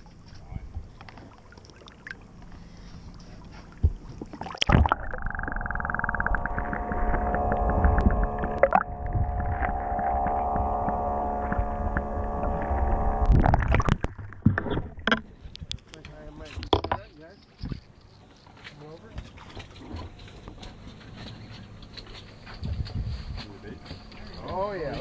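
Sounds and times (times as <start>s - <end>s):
muffled outboard motor underwater: 0.0s - 15.8s
water splashing: 0.9s - 15.6s, 18.8s - 21.3s.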